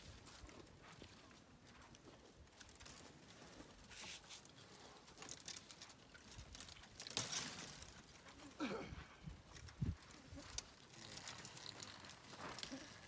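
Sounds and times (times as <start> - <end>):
rustling tearing and crackling: 2.5 - 8.6, 9.4 - 13.0.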